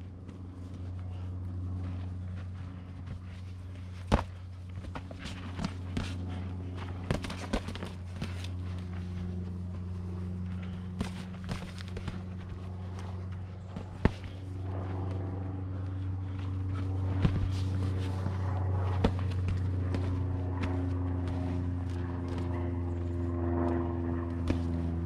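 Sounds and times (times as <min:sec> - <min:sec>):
low engine-like hum: 0:00.0 - 0:25.0
feet shuffling on dirt: 0:00.2 - 0:25.0
boxing gloves smacking: 0:03.9 - 0:08.9, 0:10.8 - 0:15.2, 0:16.7 - 0:22.7, 0:23.6 - 0:25.0.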